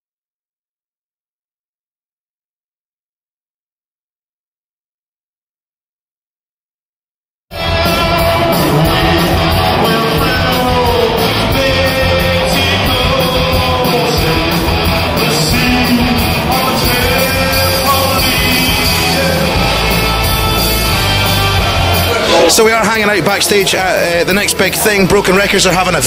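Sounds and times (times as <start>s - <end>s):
electric guitar: 7.5s - 22.6s
drums: 7.5s - 26.0s
person singing lead vocal: 7.6s - 22.7s.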